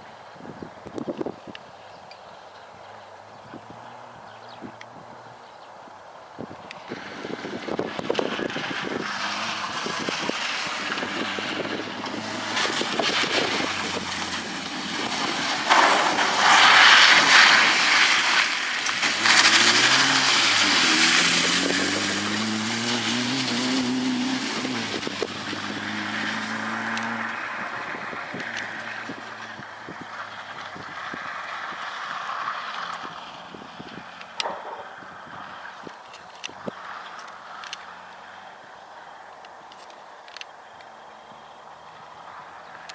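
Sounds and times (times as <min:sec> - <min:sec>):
tyres and spray hissing on gravel: 0:06.8 - 0:38.8
car engine revving: 0:07.0 - 0:35.7.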